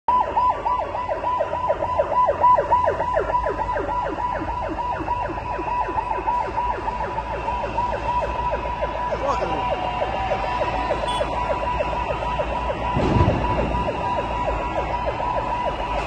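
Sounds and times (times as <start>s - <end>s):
siren fast yelp: 0.1s - 16.0s.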